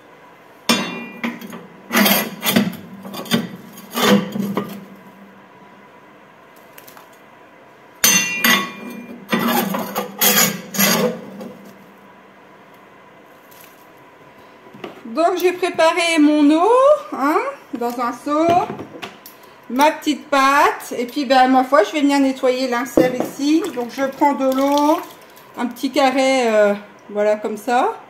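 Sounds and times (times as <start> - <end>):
metal shovel scraping ash: 0.8 - 4.9, 8.4 - 11.8.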